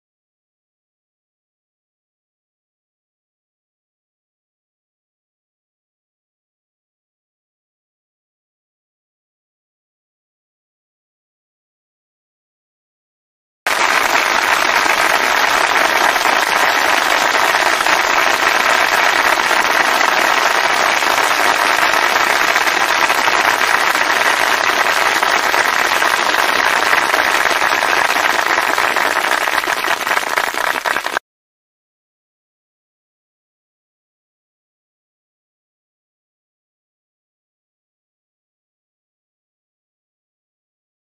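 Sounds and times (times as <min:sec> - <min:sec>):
crowd applause: 0:13.7 - 0:31.2.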